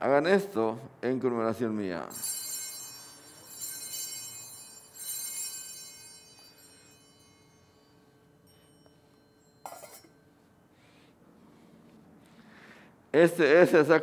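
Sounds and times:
altar bells ringing: 2.0s - 10.8s.

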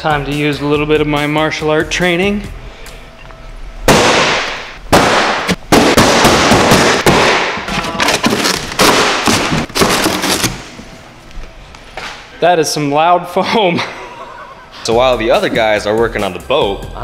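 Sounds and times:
foam board cracking and ripping: 7.1s - 10.7s.

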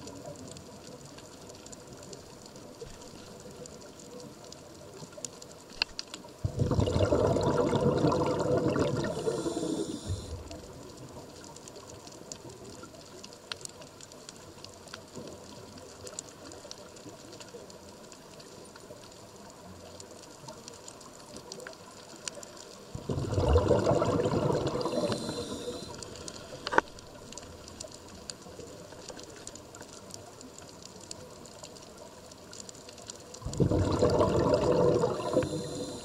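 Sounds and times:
faint clicks: 0.0s - 6.4s, 7.5s - 36.0s
exhaled bubbles rushing: 6.4s - 10.6s, 22.9s - 26.1s, 33.4s - 36.0s
scuba regulator breathing: 7.5s - 10.6s, 23.4s - 26.7s, 33.5s - 36.0s
high hiss: 9.0s - 10.4s, 24.7s - 26.4s, 35.1s - 36.0s.

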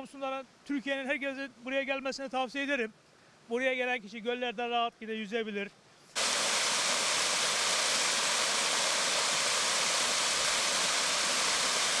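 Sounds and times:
waterfall rushing: 6.2s - 12.0s.

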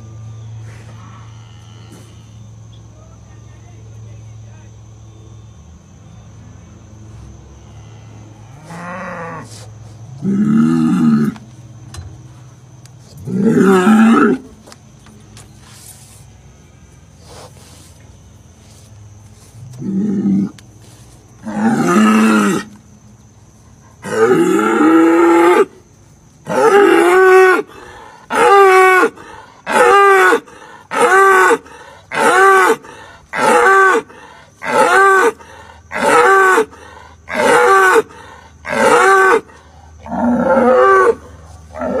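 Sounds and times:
bull bellowing: 7.8s - 11.4s, 13.2s - 14.5s, 19.6s - 20.6s, 21.4s - 22.8s, 24.0s - 25.8s, 26.4s - 42.0s.

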